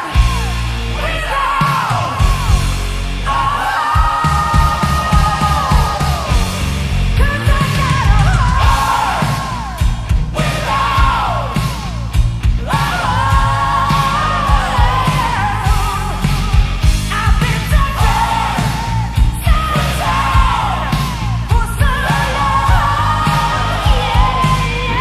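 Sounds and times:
hard rock band playing: 0.0 - 25.0
woman singing: 7.2 - 9.0, 21.5 - 25.0.

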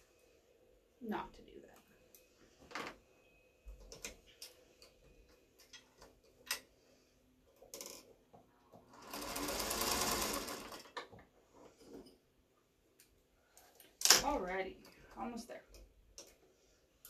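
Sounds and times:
sewing machine stitching: 8.9 - 11.0.

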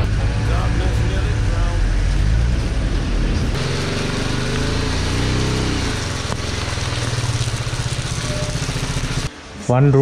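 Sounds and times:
motorcycle engine slowing to idle: 3.6 - 9.3.

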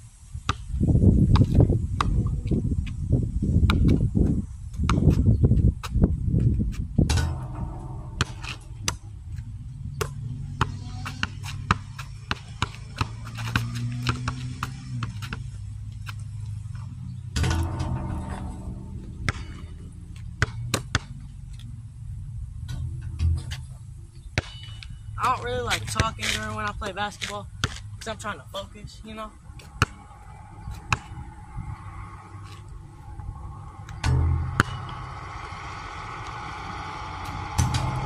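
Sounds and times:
basketball bouncing on asphalt: 0.5 - 18.1, 18.7 - 21.8, 22.7 - 28.3, 29.5 - 31.2, 33.9 - 38.0
background music with bass: 4.2 - 26.0.

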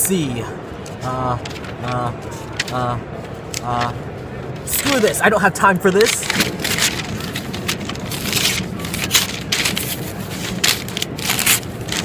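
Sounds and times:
paper pages tearing: 6.0 - 12.0.

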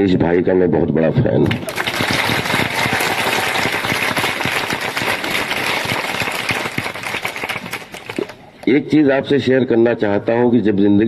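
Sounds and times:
audience applauding: 1.5 - 8.4.

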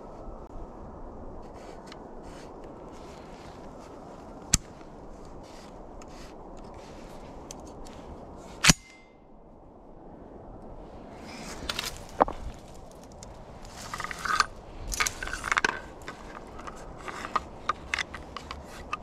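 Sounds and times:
steady low rush: 0.0 - 19.0
shotgun metal clicks and rattles: 13.1 - 19.0.

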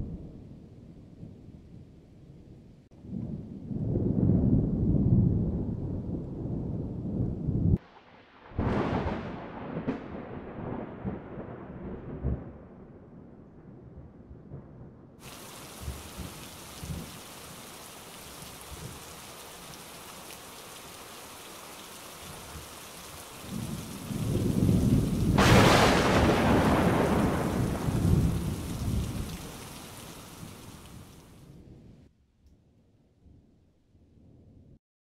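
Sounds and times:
thunder rumbling and cracking: 3.0 - 31.9
steady rain: 15.2 - 31.5.

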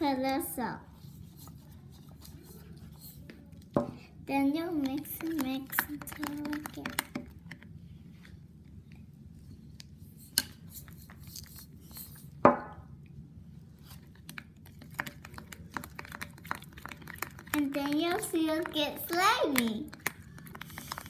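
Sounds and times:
spoon stirring in plastic cup: 1.0 - 7.7, 10.2 - 12.4, 13.8 - 21.0.

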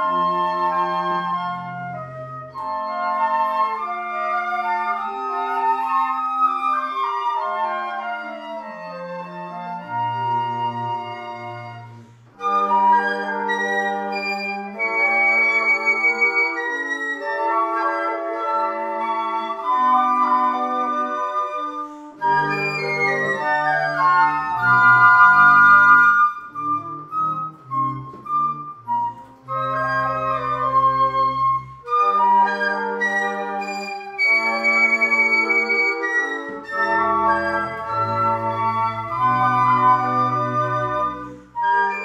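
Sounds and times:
flute choir playing chords: 0.0 - 42.0.

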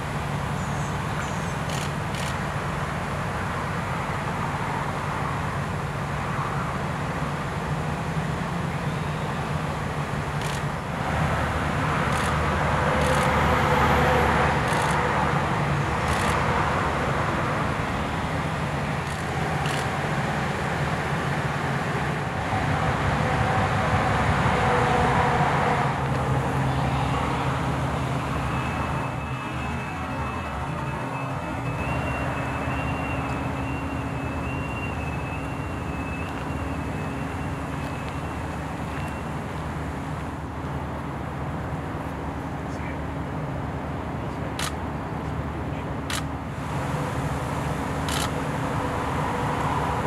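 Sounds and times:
road traffic drone: 0.0 - 50.0.

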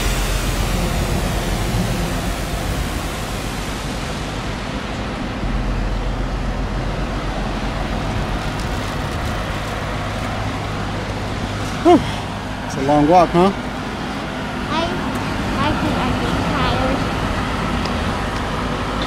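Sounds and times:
wheels rolling over pavement: 7.0 - 12.6.

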